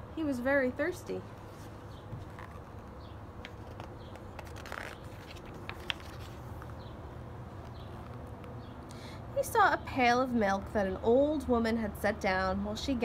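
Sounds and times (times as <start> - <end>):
steady low hum: 0.0 - 13.0
book pages rustling: 1.3 - 8.6.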